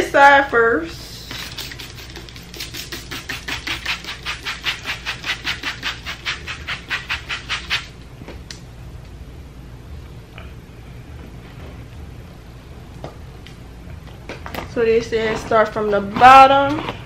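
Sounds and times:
trigger spray bottle misting: 1.3 - 7.9.

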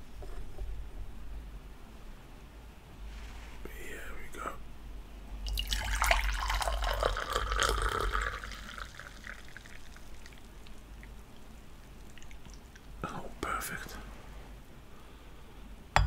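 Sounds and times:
tea pouring into cup: 5.4 - 13.0.

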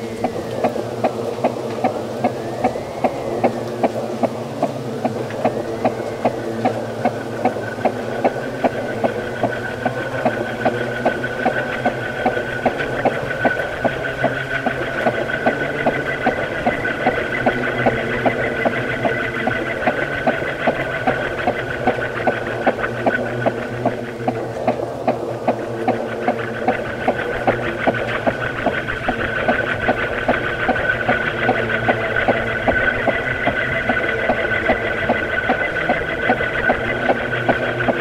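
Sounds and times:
high whistle: 0.0 - 12.9
ceiling fan hum: 0.0 - 38.0
fan ticking: 0.0 - 38.0.

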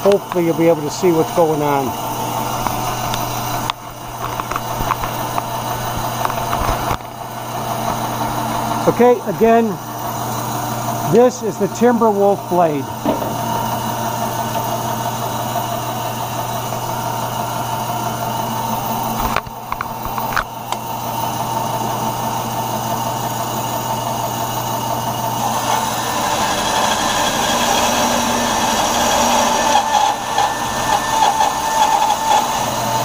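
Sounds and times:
bandsaw cutting wood: 0.0 - 33.0
bandsaw motor hum: 0.0 - 33.0
knocks: 13.0 - 13.6.

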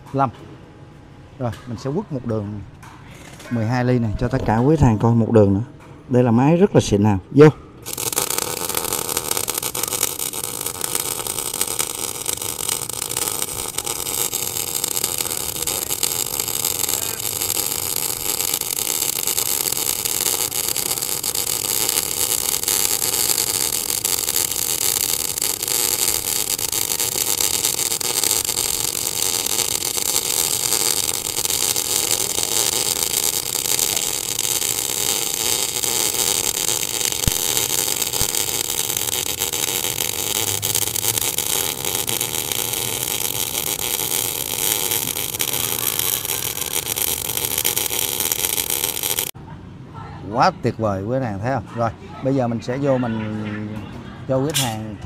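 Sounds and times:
welding arc hiss and crackle: 7.8 - 49.4.

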